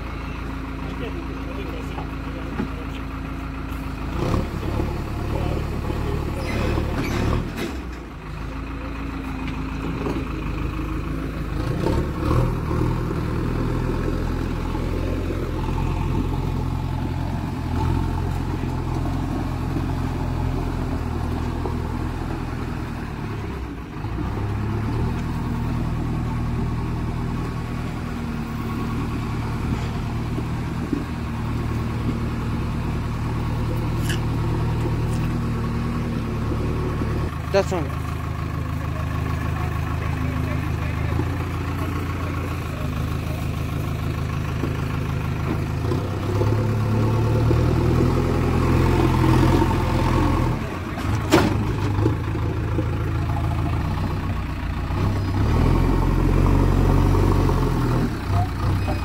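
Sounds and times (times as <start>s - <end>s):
backhoe diesel engine revving: 0.0s - 59.0s.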